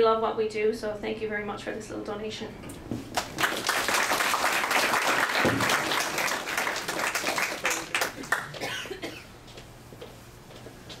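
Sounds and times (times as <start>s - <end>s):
audience applauding: 3.1s - 8.6s.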